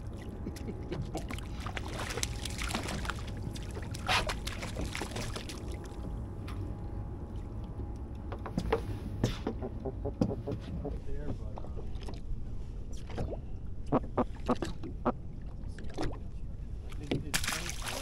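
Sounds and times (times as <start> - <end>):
fish splashing in water: 1.1 - 6.1, 17.4 - 18.0.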